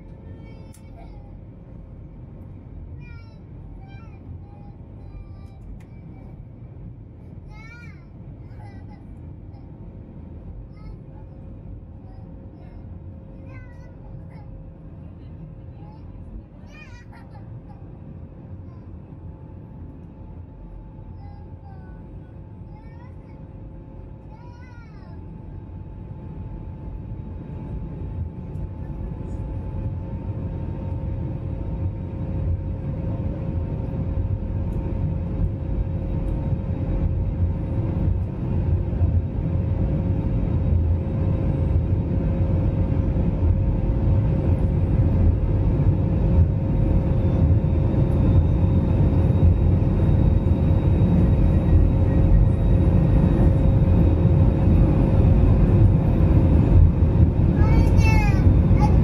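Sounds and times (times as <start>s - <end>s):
jet engine hum in cabin: 0.0s - 59.0s.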